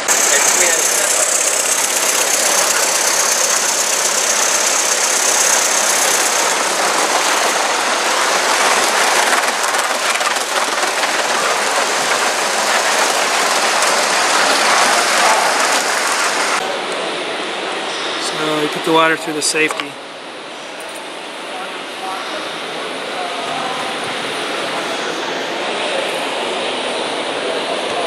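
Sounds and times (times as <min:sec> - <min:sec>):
wheels rattling on track: 0:00.0 - 0:16.6
steam locomotive hissing: 0:00.0 - 0:17.2, 0:21.8 - 0:28.0.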